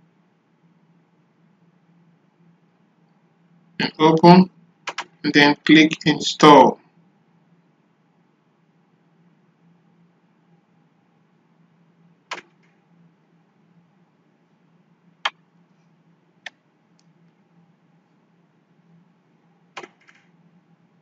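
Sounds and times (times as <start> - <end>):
faint low hum: 0.0 - 21.0
sharp clicks: 4.9 - 5.3, 12.3 - 12.7, 19.8 - 20.2.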